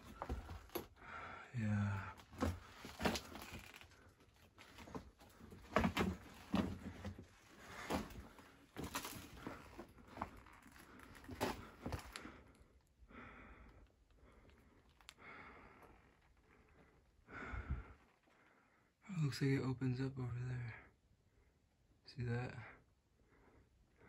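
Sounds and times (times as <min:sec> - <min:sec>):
person breathing: 0:00.0 - 0:03.0, 0:09.3 - 0:19.0.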